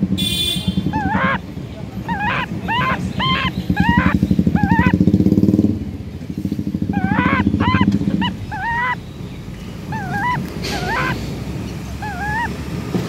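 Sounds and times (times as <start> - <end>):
motorcycle engine running: 0.0 - 10.4
bird whistling: 0.4 - 5.0, 6.9 - 12.5.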